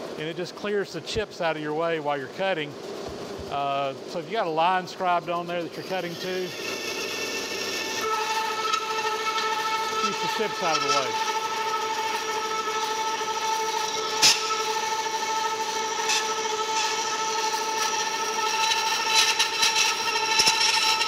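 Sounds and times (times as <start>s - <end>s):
band saw cutting metal: 4.0s - 21.0s.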